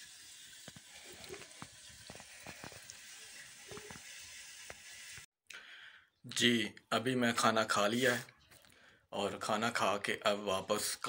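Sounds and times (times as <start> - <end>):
curry sizzling and bubbling: 0.0 - 5.3.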